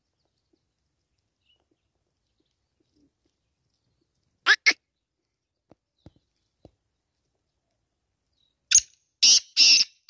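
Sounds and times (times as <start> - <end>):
faint ticks: 0.1 - 4.4
bird calling with scratchy notes: 8.7 - 10.0.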